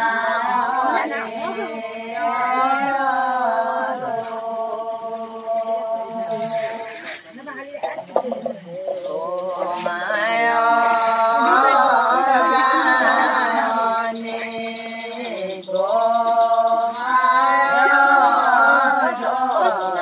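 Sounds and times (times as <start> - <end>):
women singing folk song: 0.0 - 20.0.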